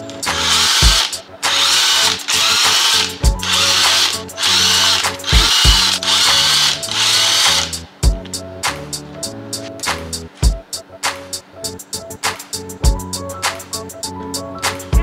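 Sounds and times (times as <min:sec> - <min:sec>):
impact driver hammering: 0:00.3 - 0:07.7.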